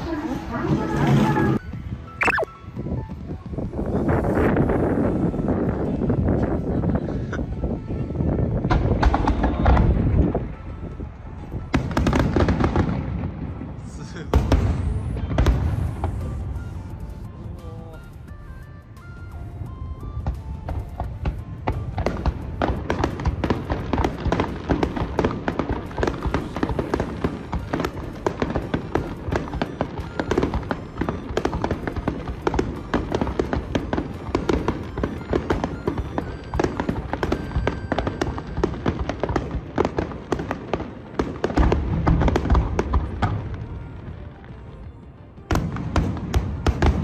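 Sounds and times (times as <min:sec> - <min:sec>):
fireworks bangs and crackles: 0:02.2 - 0:47.0
deep fireworks booming: 0:08.6 - 0:10.6, 0:11.6 - 0:16.8, 0:20.0 - 0:44.7, 0:45.4 - 0:47.0.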